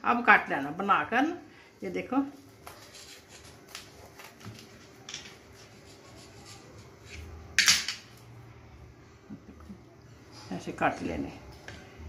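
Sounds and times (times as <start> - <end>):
knife crunching through fried food: 2.6 - 7.1.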